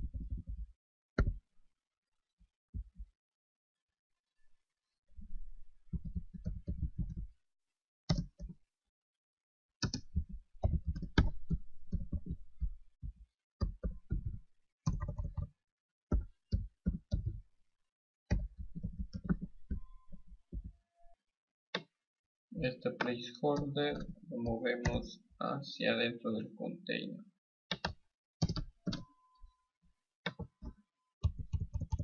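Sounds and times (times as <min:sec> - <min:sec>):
keyboard typing: 0:13.6 - 0:15.5, 0:23.0 - 0:25.1, 0:27.7 - 0:29.1, 0:30.3 - 0:32.0.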